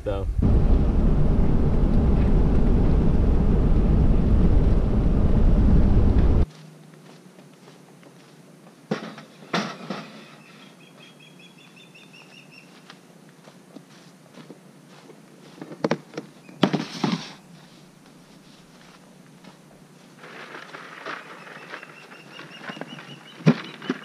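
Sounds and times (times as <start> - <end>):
loud low rumble: 0.0 - 6.5
bird chirping: 10.4 - 12.8, 21.2 - 24.0.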